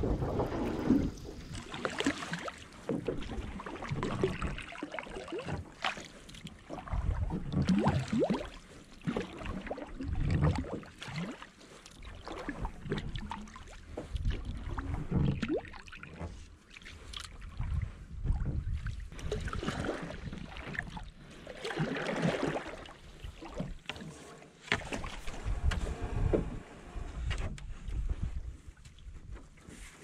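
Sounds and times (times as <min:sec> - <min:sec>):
low rumble: 0:00.0 - 0:01.7
paddle splashing water: 0:00.0 - 0:30.0.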